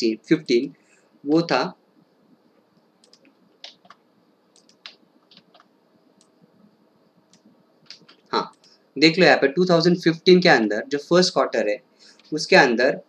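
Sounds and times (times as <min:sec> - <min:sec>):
computer mouse clicks: 0:02.8 - 0:06.3, 0:07.3 - 0:08.8
keyboard keys clicking: 0:03.0 - 0:04.0, 0:04.6 - 0:06.3.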